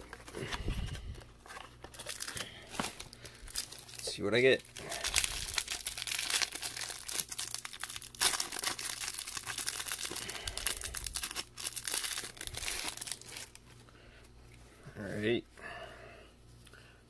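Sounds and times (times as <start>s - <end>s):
plastic wrapper crinkling: 0.0s - 13.6s.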